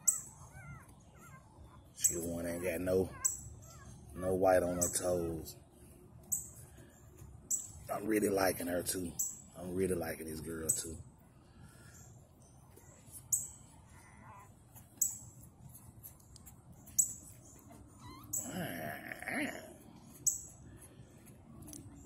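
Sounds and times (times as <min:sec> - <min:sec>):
puppy whining: 0:00.0 - 0:04.9, 0:17.6 - 0:19.7.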